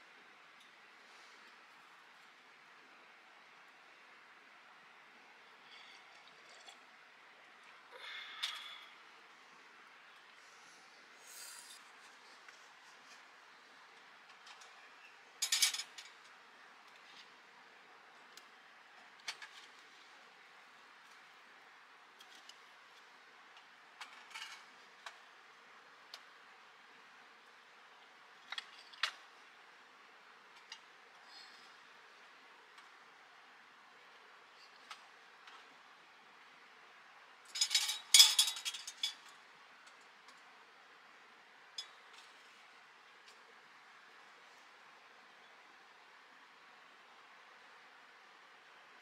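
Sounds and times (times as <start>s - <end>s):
faint hiss: 0.0s - 24.1s.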